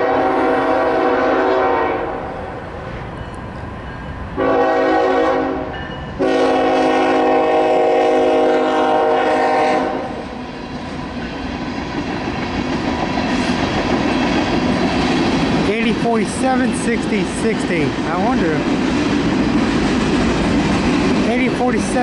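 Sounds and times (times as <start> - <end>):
locomotive air horn: 0.0 - 2.2, 4.4 - 10.2
freight train rumbling: 0.0 - 22.0.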